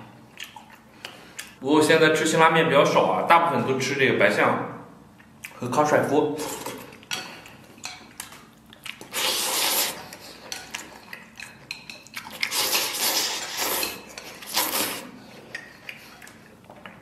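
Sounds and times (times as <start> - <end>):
noodles slurped: 8.9 - 11.2, 12.2 - 16.5.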